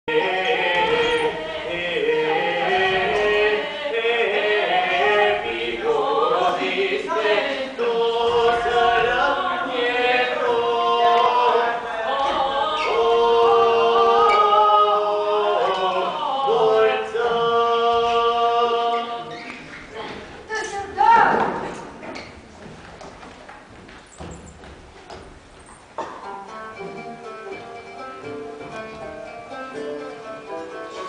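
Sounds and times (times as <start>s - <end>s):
voices singing in harmony: 0.1s - 20.3s.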